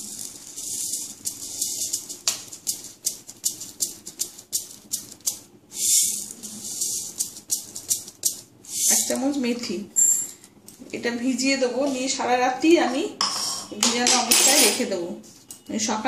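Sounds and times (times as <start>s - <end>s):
seeds rattling in plastic bottle: 0.0s - 9.4s.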